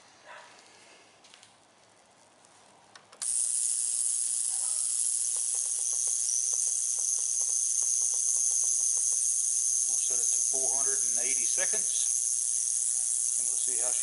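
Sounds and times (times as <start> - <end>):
steady high whine: 3.2 - 14.0
loud high hiss: 5.7 - 14.0.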